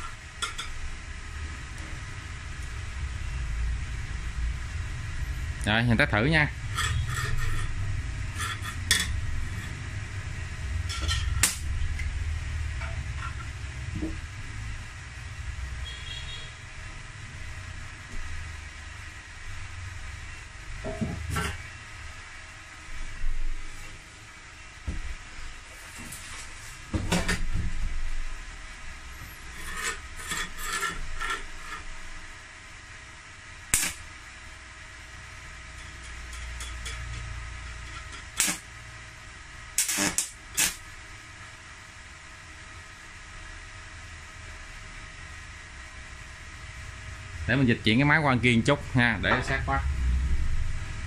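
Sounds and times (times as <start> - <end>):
steady low hum: 0.0 - 51.0
metallic clicks on sheet metal: 10.9 - 11.7, 33.7 - 34.0, 35.8 - 38.7.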